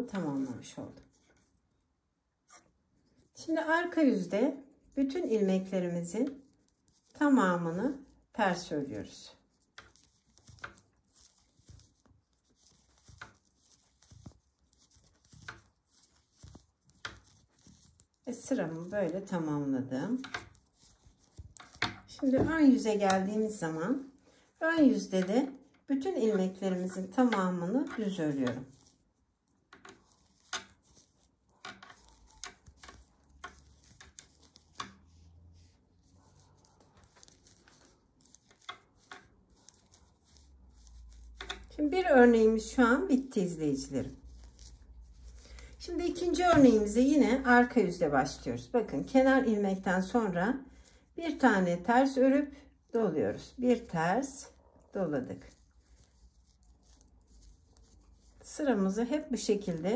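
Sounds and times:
knitting needles clicking: 0:09.6 - 0:11.9, 0:20.1 - 0:23.8, 0:29.6 - 0:35.1, 0:36.0 - 0:41.8.

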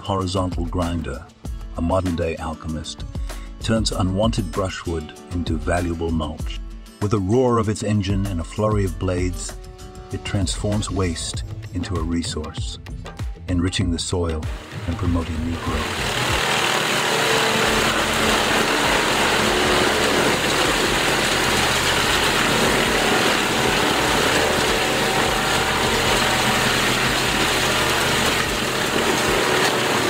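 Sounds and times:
wood grinder running under load: 0:14.5 - 0:30.0.

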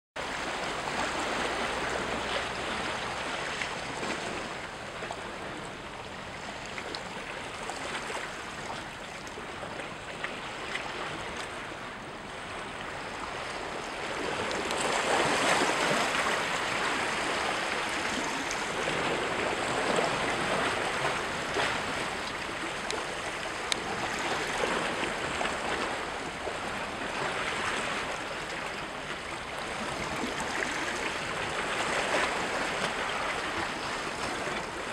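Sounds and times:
small waves splashing against rocks: 0:06.4 - 0:34.9.

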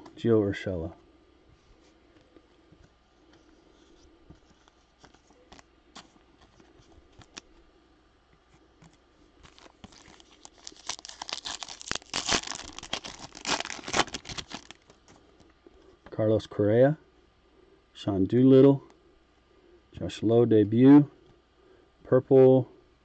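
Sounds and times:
card pack wrapper tearing: 0:09.4 - 0:15.0.

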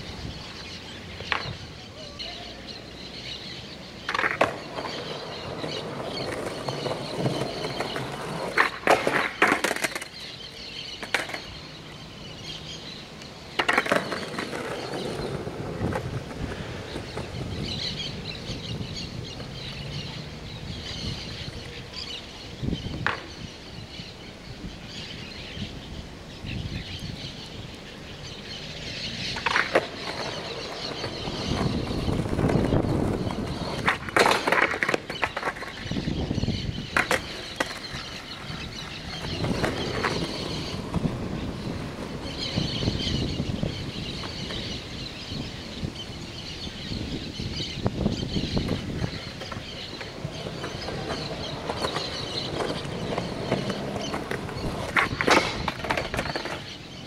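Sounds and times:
birds chirping: 0:00.0 - 0:57.0
skateboard wheels rolling on concrete: 0:00.0 - 0:57.0
skateboard clacking on ground: 0:01.2 - 0:02.4, 0:04.0 - 0:12.0, 0:13.2 - 0:20.2, 0:22.9 - 0:23.5, 0:29.0 - 0:44.9, 0:48.0 - 0:57.0.

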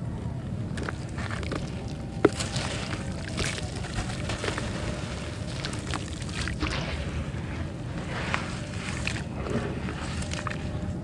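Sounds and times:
steady low rumble: 0:00.0 - 0:11.0
dirt trickling into water: 0:00.8 - 0:06.9.

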